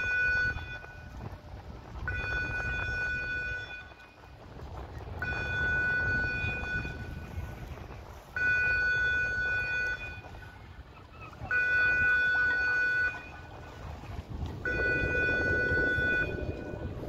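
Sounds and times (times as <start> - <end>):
wind rumble on microphone: 0.0 - 17.0
high steady warning tone: 2.0 - 4.2, 5.2 - 7.4, 8.4 - 10.4, 11.4 - 13.7, 14.6 - 17.0.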